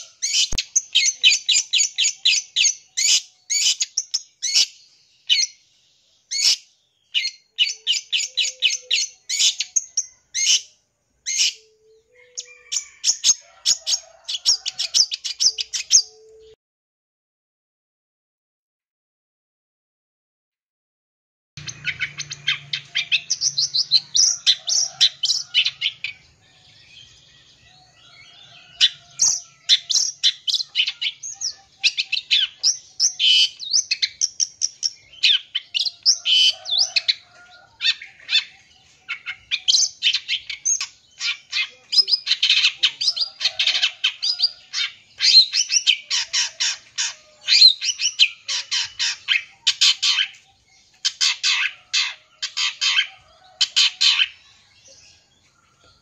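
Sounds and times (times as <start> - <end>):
shrike harsh chattering song: 21.6 - 26.3.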